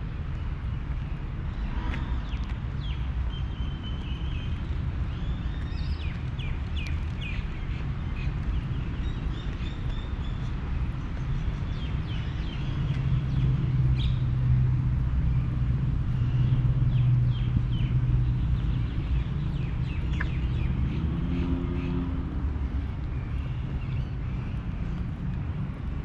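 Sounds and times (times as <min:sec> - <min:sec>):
distant traffic rumble: 0:00.0 - 0:26.0
birds chirping: 0:15.3 - 0:25.3.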